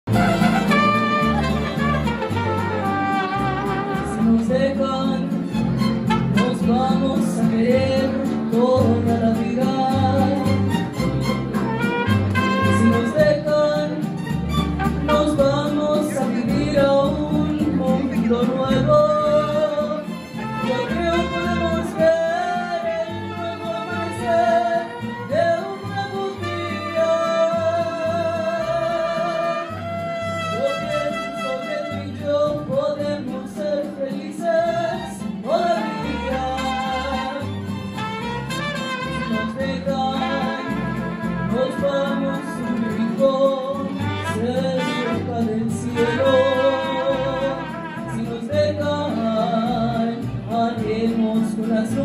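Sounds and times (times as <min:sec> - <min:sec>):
violins: 0:00.0 - 0:04.5, 0:05.2 - 0:07.4, 0:10.0 - 0:16.2, 0:22.6 - 0:27.6, 0:34.7 - 0:48.8
bass guitar: 0:00.0 - 0:52.0
strummed guitars: 0:00.0 - 0:52.0
trumpets: 0:00.1 - 0:04.4, 0:05.5 - 0:06.8, 0:10.6 - 0:13.3, 0:14.2 - 0:15.6, 0:28.9 - 0:32.2, 0:35.8 - 0:43.2, 0:44.0 - 0:48.4.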